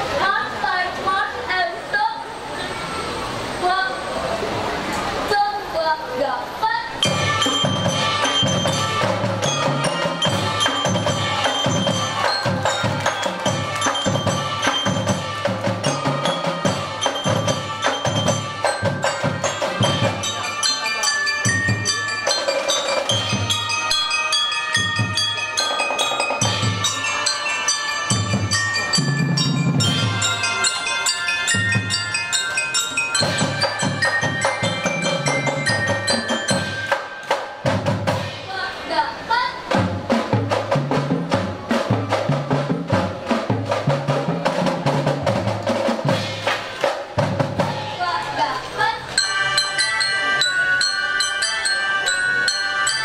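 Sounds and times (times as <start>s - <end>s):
mallet percussion melody: 7.0s - 38.5s, 39.8s - 48.0s, 49.0s - 53.0s
marching band drums: 7.0s - 38.7s, 39.6s - 48.0s.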